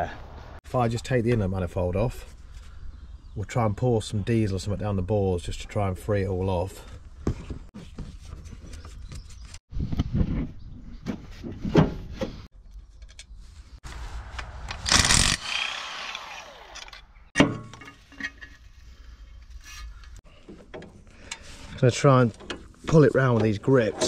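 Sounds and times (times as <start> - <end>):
cordless driver whine: 14.7 - 17.1.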